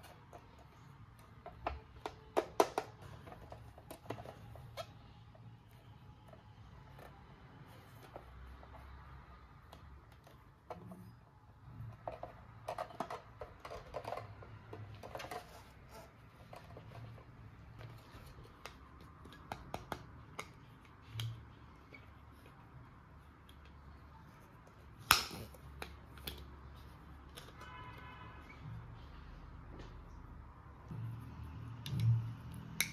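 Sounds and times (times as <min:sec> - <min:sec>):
plastic parts clicking: 0:11.8 - 0:15.7.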